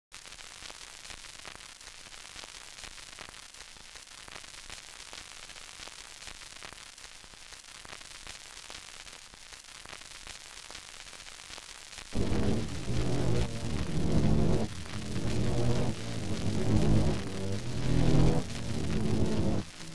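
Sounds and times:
crackling clicks: 12.2 - 19.9
static hiss: 12.2 - 19.9.

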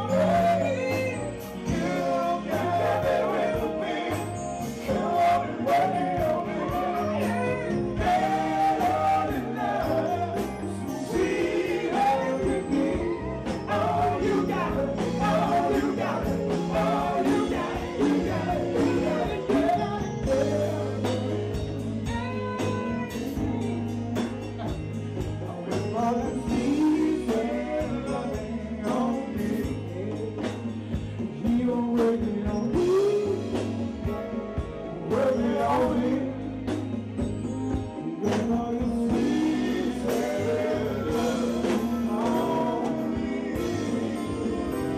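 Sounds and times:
man singing into microphone: 0.0 - 23.4, 25.4 - 36.9, 37.9 - 44.9
congas: 0.0 - 44.9
drums: 0.0 - 44.9
keyboard: 0.0 - 44.9.

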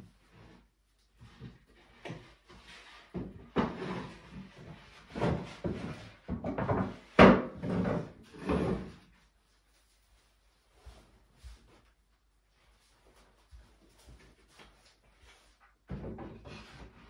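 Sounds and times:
wooden panels knocking and scraping: 1.3 - 9.0.

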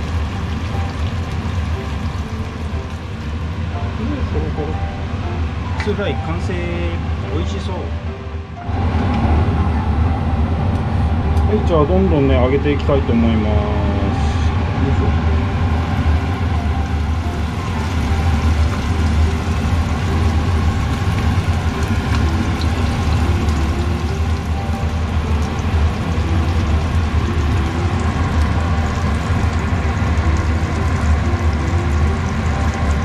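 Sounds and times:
fish deep-frying in hot oil: 0.0 - 7.8, 15.2 - 33.0
range hood fan droning: 0.0 - 33.0.

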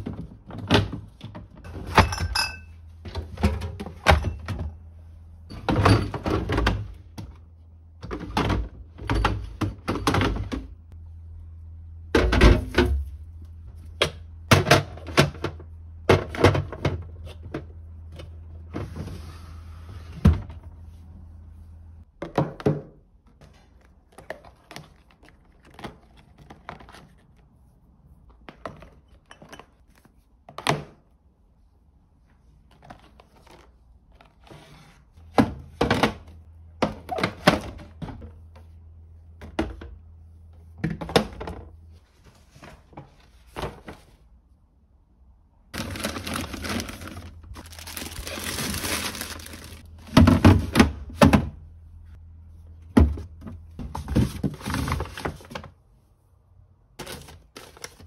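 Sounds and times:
low steady hum: 1.6 - 22.1
containers knocking and clunking: 8.0 - 10.8, 12.1 - 13.2, 14.0 - 18.4, 22.1 - 27.0, 35.3 - 38.7, 39.4 - 40.1, 40.8 - 41.8, 45.8 - 51.6.

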